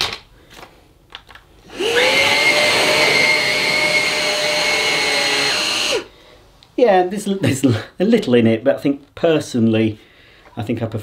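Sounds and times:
vacuum cleaner motor whining: 1.7s - 6.1s.

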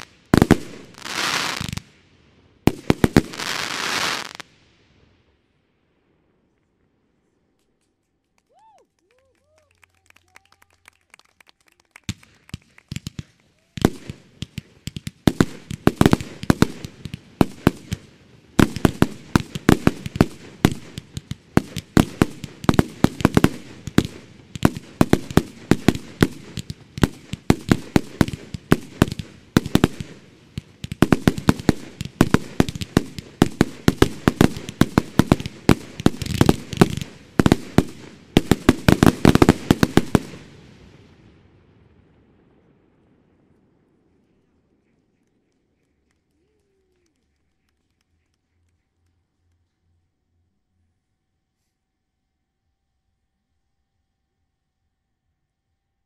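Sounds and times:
fireworks barrage: 0.0s - 5.4s, 11.8s - 45.4s.

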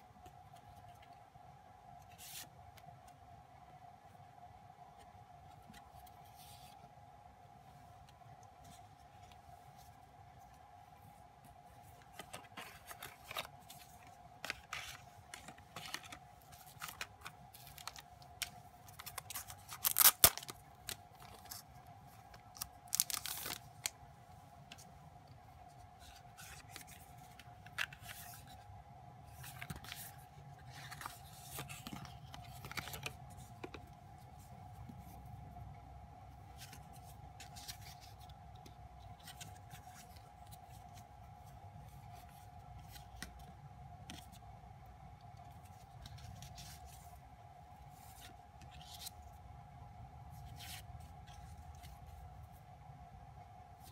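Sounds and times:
cardboard packaging rustling: 11.8s - 24.0s, 29.3s - 34.5s
packaging crinkling: 12.1s - 21.6s, 22.4s - 23.9s.

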